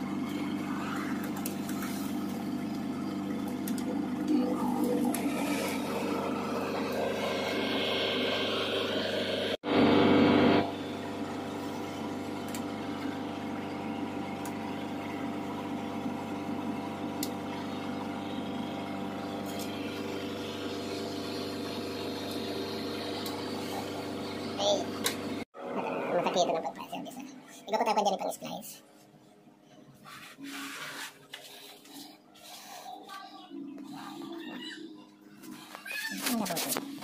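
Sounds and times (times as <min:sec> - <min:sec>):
machinery droning: 0:00.0 - 0:27.7.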